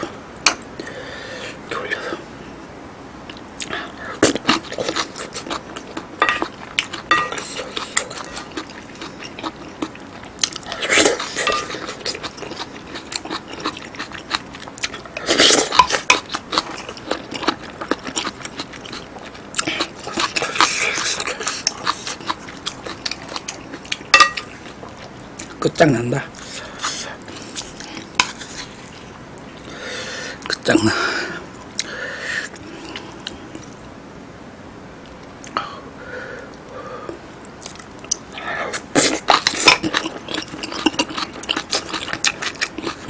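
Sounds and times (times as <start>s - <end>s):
chewing: 3.3s - 25.6s, 26.4s - 29.8s, 37.1s - 43.0s.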